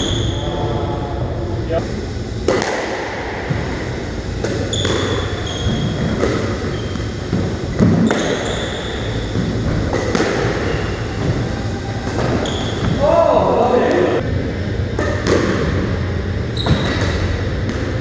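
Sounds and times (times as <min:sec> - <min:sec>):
squash ball smacking walls: 0:09.2 - 0:11.4.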